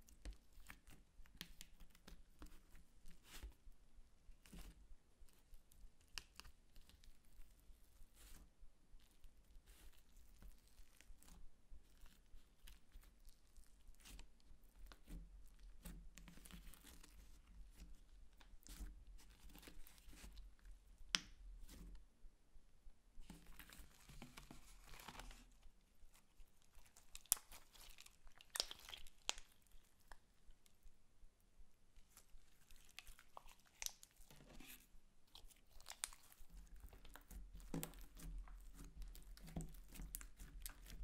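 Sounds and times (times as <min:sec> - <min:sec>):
slime popping: 0:26.8 - 0:29.6
slime crackling and clicking: 0:26.8 - 0:30.2.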